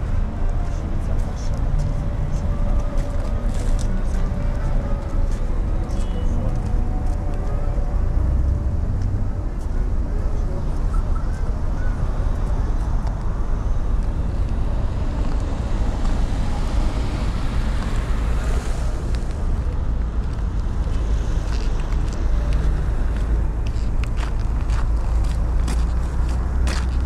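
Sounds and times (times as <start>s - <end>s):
traffic rumble: 0.0s - 27.0s
footstep clicks: 20.2s - 27.0s.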